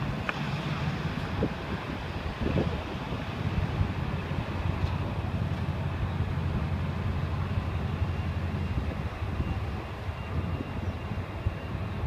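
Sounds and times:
faint high whine: 0:04.4 - 0:12.0.

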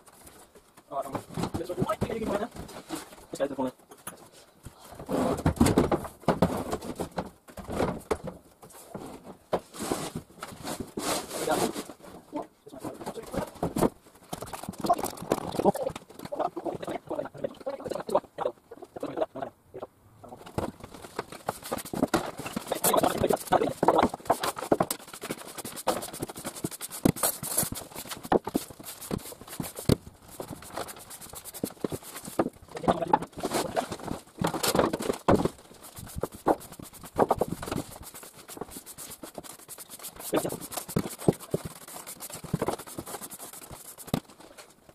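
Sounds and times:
hand brush sweeping wooden floor: 0:09.7 - 0:11.9, 0:21.4 - 0:32.4, 0:35.7 - 0:44.2.

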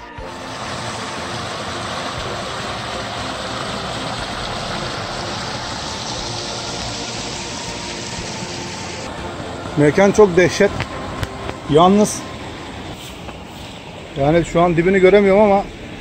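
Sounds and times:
stream rushing over rocks: 0:00.3 - 0:09.1.

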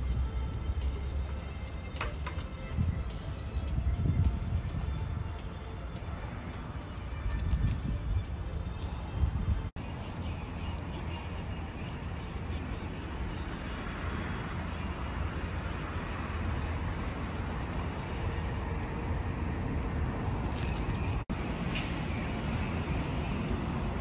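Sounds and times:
city traffic rumble: 0:00.0 - 0:24.0.

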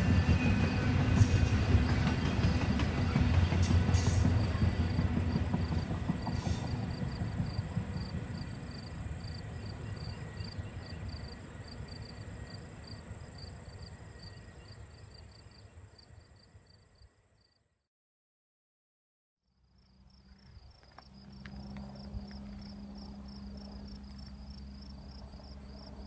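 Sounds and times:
freight train rumbling: 0:00.0 - 0:15.8, 0:21.0 - 0:26.0
insects chirping: 0:00.0 - 0:17.6, 0:19.8 - 0:26.0.

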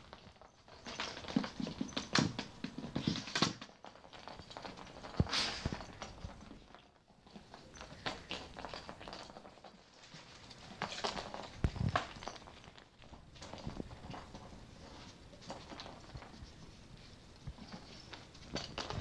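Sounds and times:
plastic balls rolling on carpet: 0:00.0 - 0:19.0
treats rattling inside balls: 0:00.0 - 0:19.0.

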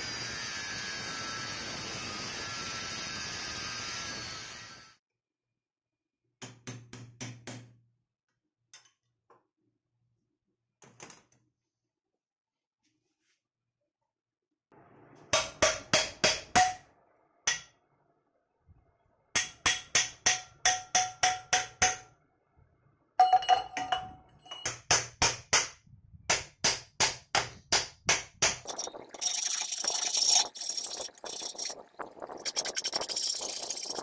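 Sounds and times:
hammer striking steel plate: 0:15.3 - 0:16.9, 0:17.5 - 0:17.8, 0:19.4 - 0:22.1.

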